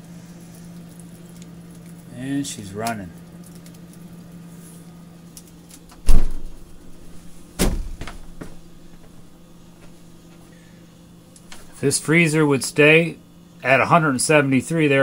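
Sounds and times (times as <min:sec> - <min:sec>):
freezer compressor humming: 0:00.0 - 0:15.0
loud thumps: 0:06.0 - 0:06.6, 0:07.6 - 0:08.6.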